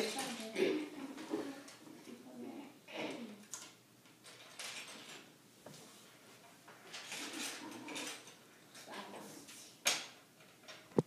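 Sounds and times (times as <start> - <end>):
plastic pieces clicking and clattering: 3.5 - 5.2.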